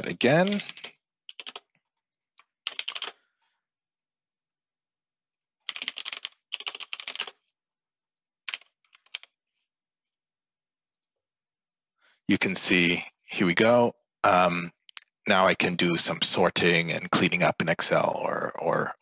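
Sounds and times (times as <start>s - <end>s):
computer keyboard typing: 0.1s - 1.7s, 2.4s - 3.2s, 5.7s - 7.4s, 8.5s - 9.3s.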